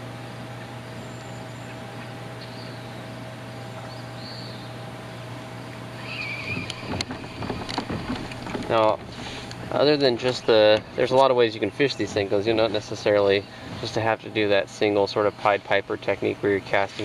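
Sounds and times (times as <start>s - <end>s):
open-air background noise: 0.0s - 17.0s
steady low hum: 0.0s - 17.0s
high bird calls: 0.5s - 8.0s.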